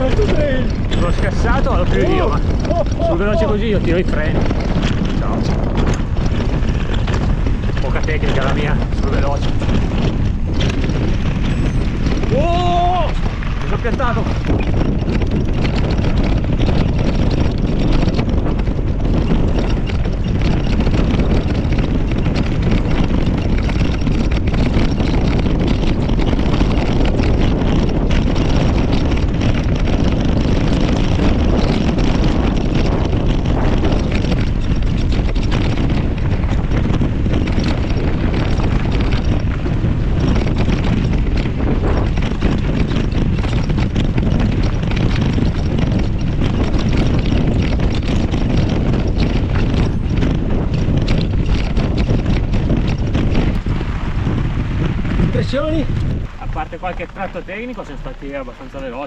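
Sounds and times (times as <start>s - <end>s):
bike clicks and rattles: 0.0s - 59.0s
tyres rumbling on dirt: 0.0s - 59.0s
wind buffeting microphone: 0.0s - 59.0s.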